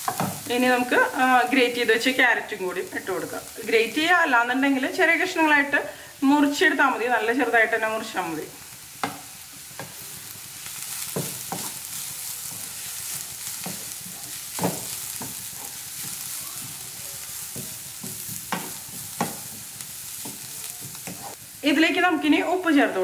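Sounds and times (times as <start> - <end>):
vegetables sizzling in oil: 0.0 - 23.0
wooden spatula knocking on pan: 9.0 - 10.0, 11.1 - 11.7, 14.6 - 15.4, 17.5 - 21.3.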